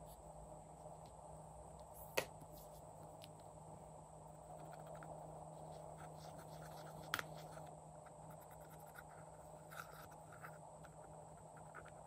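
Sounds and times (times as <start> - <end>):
spatula scratching eyeshadow: 4.5 - 12.0.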